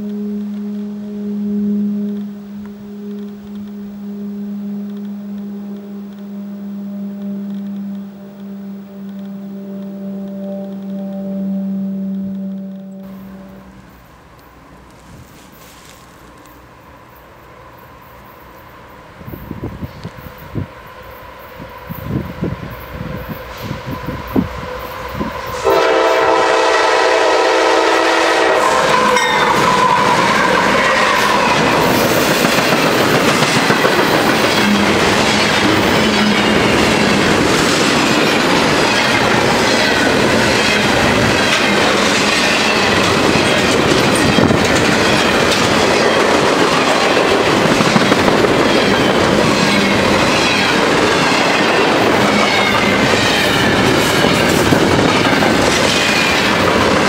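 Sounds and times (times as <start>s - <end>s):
train horn chord: 0.0s - 14.3s, 23.2s - 55.5s
freight train passing: 0.0s - 57.0s
wheels clacking over rail joints: 28.6s - 57.0s.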